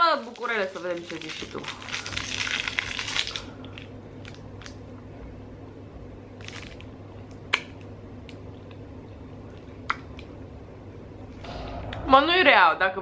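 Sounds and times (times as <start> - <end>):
foil wrapper crinkling: 0.0 - 4.8, 6.4 - 6.9
biting and chewing candy: 0.4 - 4.8.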